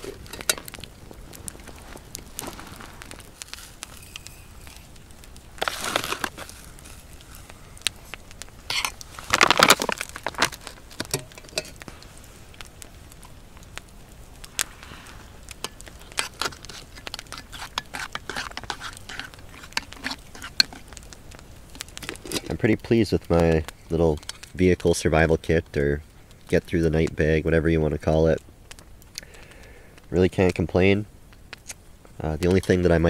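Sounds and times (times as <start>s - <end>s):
campfire crackling and popping: 0.0s - 33.0s.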